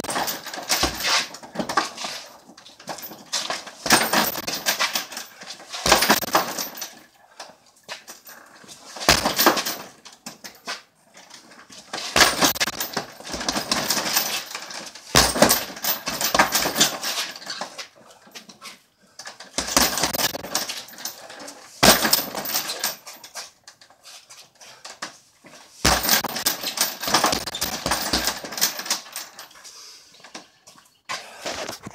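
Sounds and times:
chain jangling: 0:00.0 - 0:07.2, 0:12.0 - 0:18.5, 0:19.2 - 0:23.5, 0:25.8 - 0:29.7
punches thudding on heavy bag: 0:03.8 - 0:05.0, 0:05.8 - 0:06.6, 0:09.0 - 0:09.8, 0:12.2 - 0:14.4, 0:15.1 - 0:17.1, 0:19.6 - 0:20.5, 0:21.8 - 0:22.5, 0:25.8 - 0:28.6.

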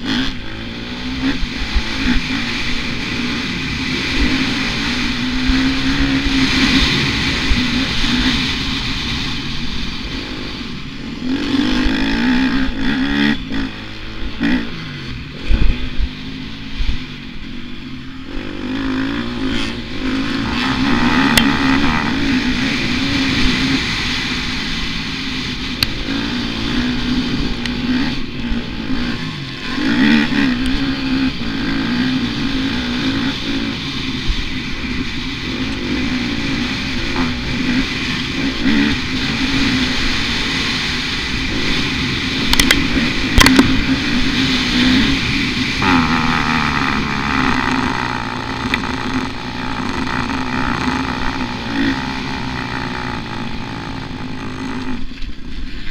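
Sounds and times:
motocross bike engine revving: 0:00.0 - 0:55.9.

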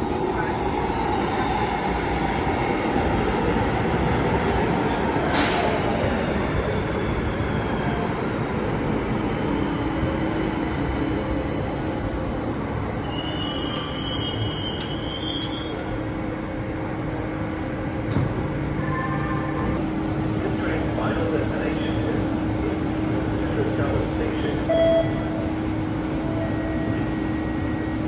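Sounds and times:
train wheels rumbling on rails: 0:00.0 - 0:28.0
high brake squeal: 0:09.4 - 0:15.9.

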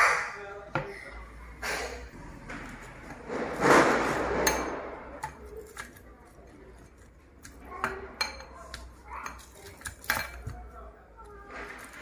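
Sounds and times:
rustling scrape: 0:01.6 - 0:05.1.

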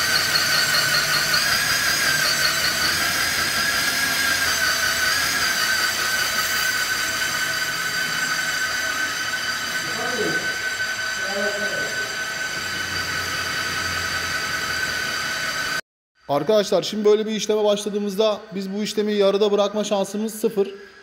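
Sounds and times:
core drill motor whining: 0:00.0 - 0:15.8.

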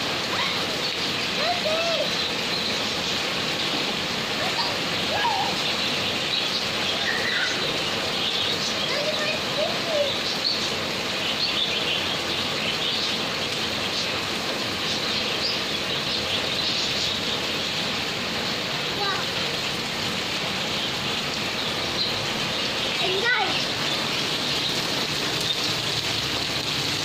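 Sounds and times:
birds chirping: 0:00.0 - 0:27.0
steady rain falling: 0:00.0 - 0:27.0.

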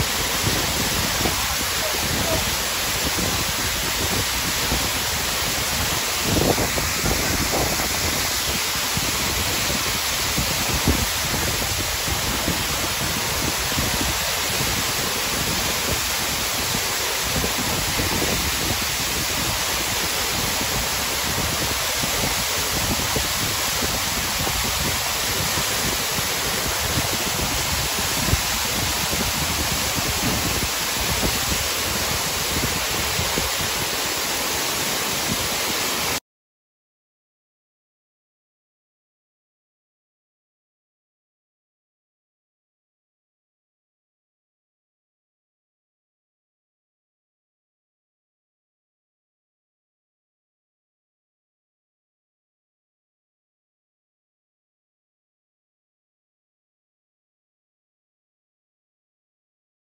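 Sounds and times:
waterfall rushing: 0:00.0 - 0:36.2.

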